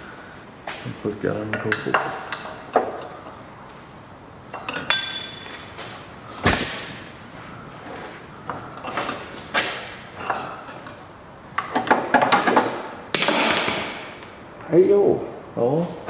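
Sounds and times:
metal tools clinking and knocking: 4.5s - 5.6s, 11.6s - 14.6s.

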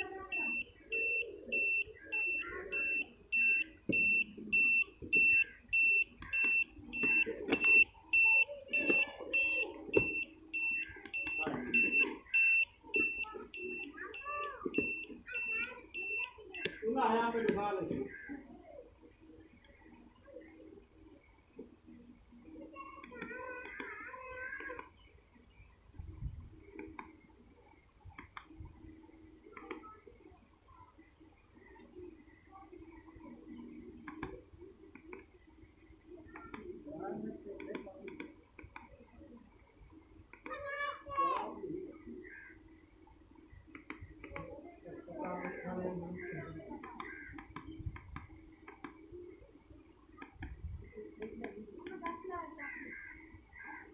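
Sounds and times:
short high-pitched beeps: 0.0s - 16.9s
keypad buttons clicking: 0.4s - 15.0s, 29.6s - 29.8s, 34.0s - 35.2s, 36.3s - 36.7s, 43.7s - 44.5s, 46.2s - 49.0s.

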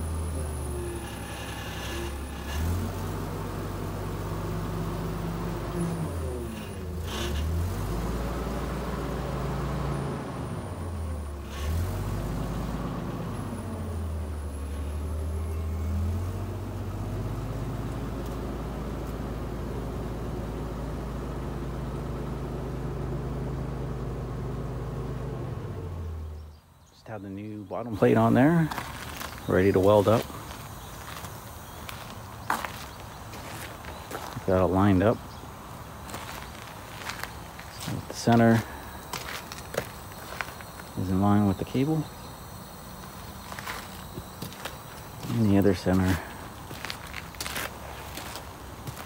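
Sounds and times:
forklift engine running: 0.0s - 49.0s.

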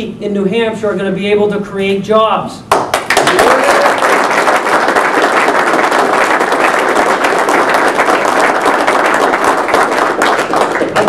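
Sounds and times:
crowd applauding: 2.7s - 11.0s.

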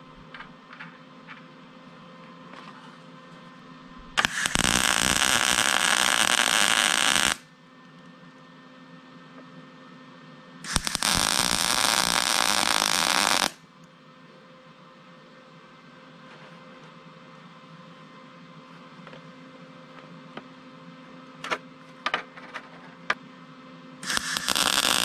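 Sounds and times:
arc welding crackle: 4.1s - 7.4s, 10.6s - 13.6s, 24.0s - 25.0s.

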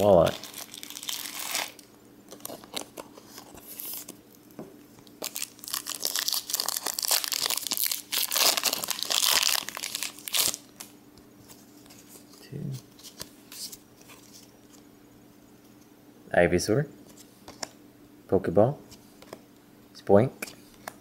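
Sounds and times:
foil wrapper crinkling and tearing: 0.0s - 4.2s, 5.1s - 10.9s.

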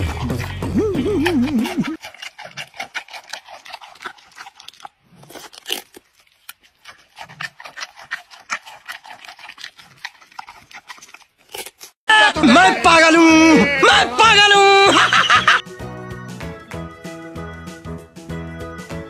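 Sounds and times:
panda crunching pumpkin: 0.0s - 12.0s.

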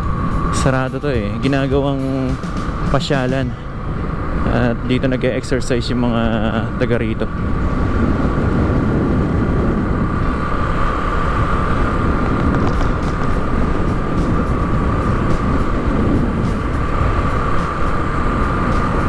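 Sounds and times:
high-pitched hum: 0.0s - 7.4s, 9.9s - 19.0s
road traffic rumble: 0.0s - 19.0s.

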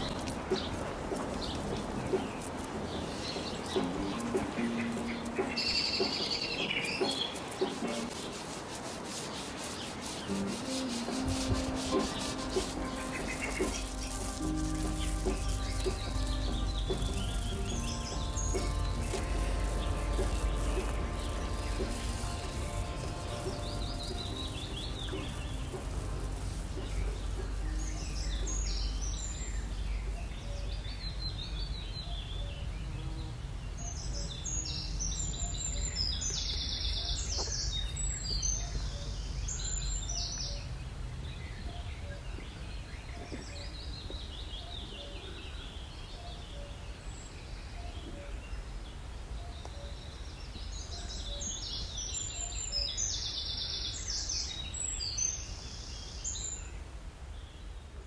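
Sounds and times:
high bird chirps: 0.0s - 32.5s
low outdoor rumble: 10.4s - 31.9s.

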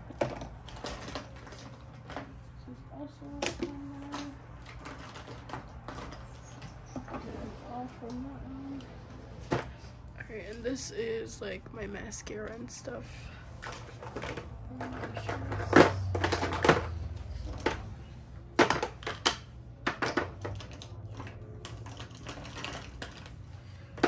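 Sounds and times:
plastic items clattering: 0.0s - 2.6s, 3.3s - 7.4s, 13.6s - 24.0s.

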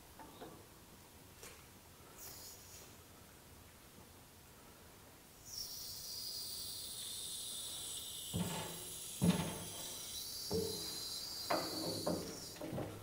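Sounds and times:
hydraulic valve hissing: 5.5s - 13.0s.

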